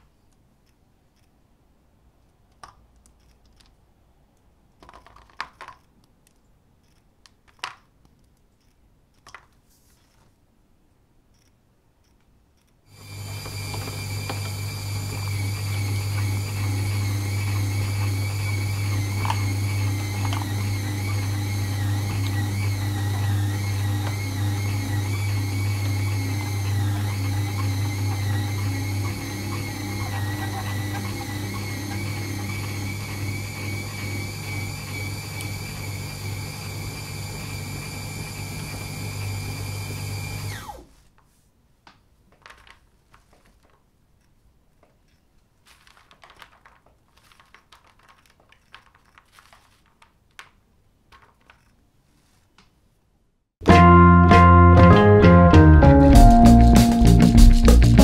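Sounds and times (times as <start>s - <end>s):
rustles and clicks of chocolate pieces: 2.4s - 10.4s, 41.2s - 52.8s
meat grinder humming: 13.0s - 40.8s.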